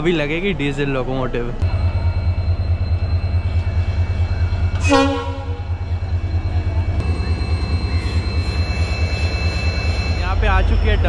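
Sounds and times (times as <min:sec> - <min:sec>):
diesel locomotive engine pulsing: 0:00.0 - 0:11.0
locomotive horn toot: 0:04.7 - 0:05.8.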